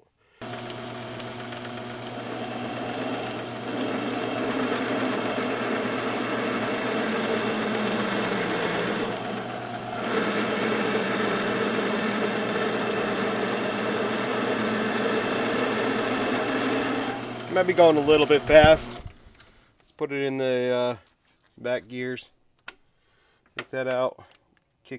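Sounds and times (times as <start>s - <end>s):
lathe motor hum: 0.4s - 19.3s
drill grinding into steel: 0.4s - 19.4s.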